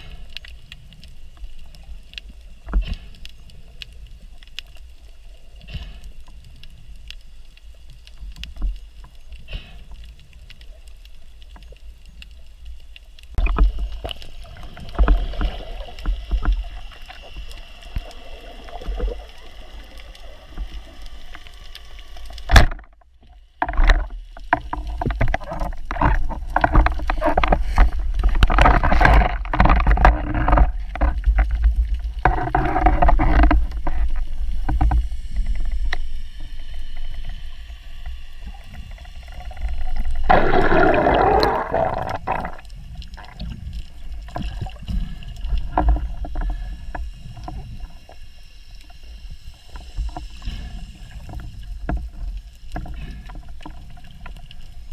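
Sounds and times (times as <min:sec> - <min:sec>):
underwater water rushing: 0:11.3 - 0:54.9.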